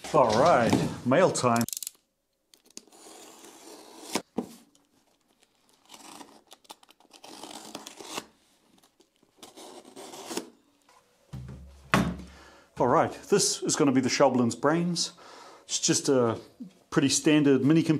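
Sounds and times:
knife slitting packing tape: 5.6 - 10.6.

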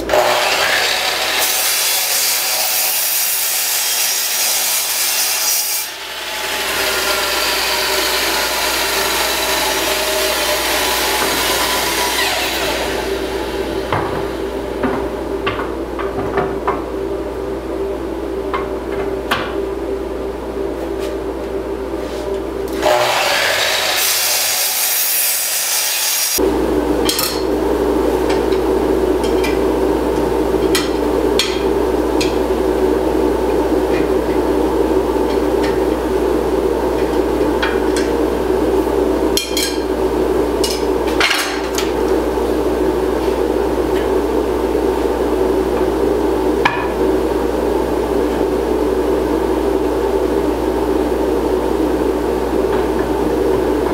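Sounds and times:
woodworking machinery humming: 0.0 - 53.9
boards and tools knocking: 13.9 - 16.9.

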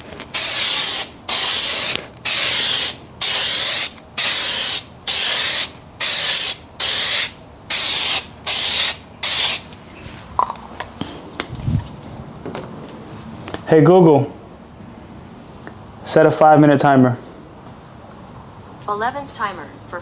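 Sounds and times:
aerosol can spraying: 0.3 - 9.7.

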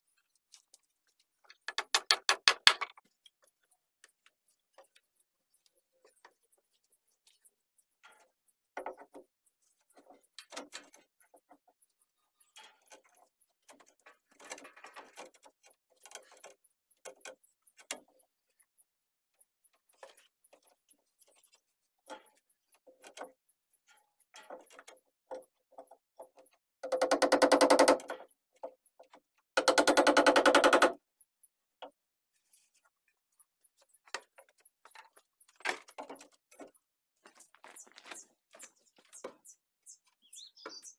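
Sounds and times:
small power tool rattling: 26.8 - 28.2, 29.6 - 31.0.

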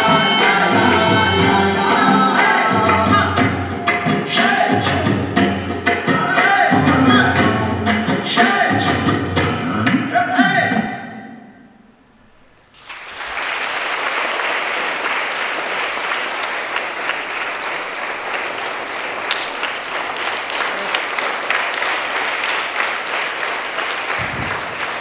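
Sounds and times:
audience clapping: 0.0 - 5.0, 12.7 - 25.0.

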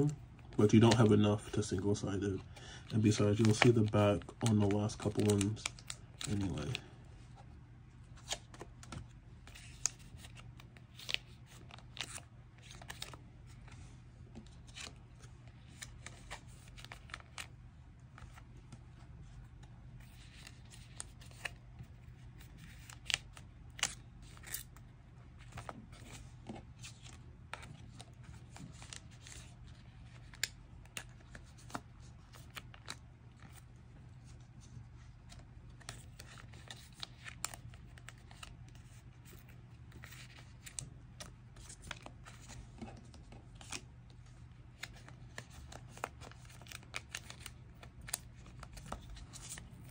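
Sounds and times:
plastic sleeves crinkling: 0.1 - 6.9, 25.4 - 33.6, 34.2 - 49.9.

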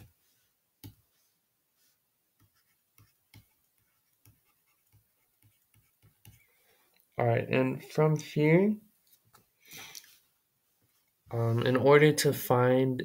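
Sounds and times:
stylus tapping on tablet screen: 0.8 - 1.1, 2.4 - 6.4.

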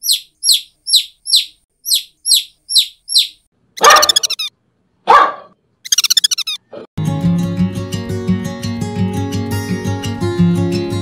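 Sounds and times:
small bird chirping: 0.0 - 4.5, 5.8 - 6.7.

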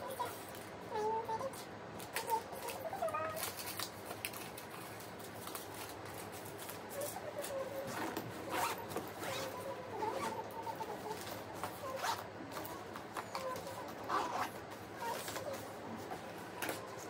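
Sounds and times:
rustle of packing: 2.1 - 17.0
luggage zipper being pulled: 7.9 - 9.5, 12.0 - 12.2, 14.1 - 14.6.

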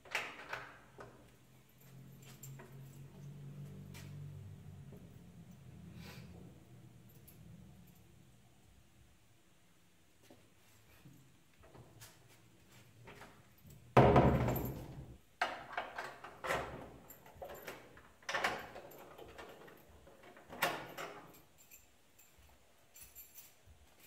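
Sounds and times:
door banging shut: 14.0 - 15.2.

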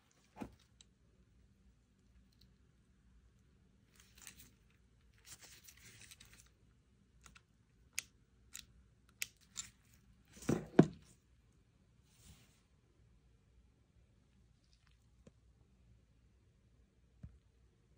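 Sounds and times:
rustling and scraping: 0.0 - 0.7, 3.9 - 6.5, 9.6 - 11.2.

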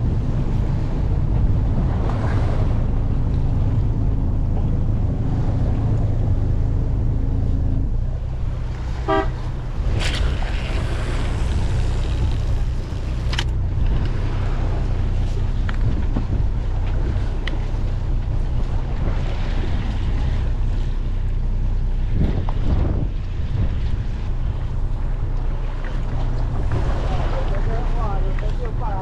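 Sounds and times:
choppy sea water: 0.0 - 29.0
wind rumble on microphone: 0.0 - 29.0
stuttering buzz: 8.9 - 13.4.

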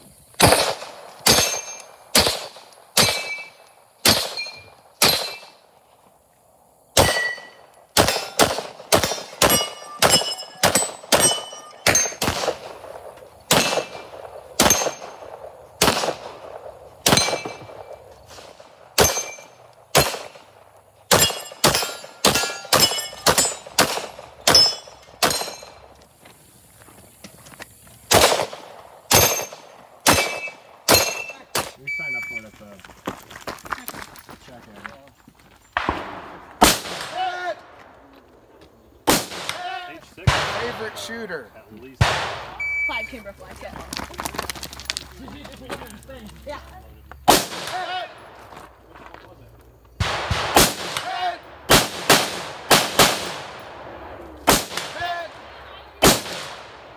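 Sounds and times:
handgun shots: 0.4 - 5.5, 7.0 - 12.8, 13.5 - 15.2, 17.0 - 17.7, 19.0 - 20.4, 21.1 - 25.7, 28.1 - 31.8
metallic ring of steel targets: 1.2 - 2.0, 3.0 - 5.6, 7.0 - 8.4, 9.0 - 12.3, 13.5 - 15.3, 17.0 - 17.9, 19.0 - 19.6, 21.1 - 23.8, 24.4 - 25.9, 29.1 - 31.4.

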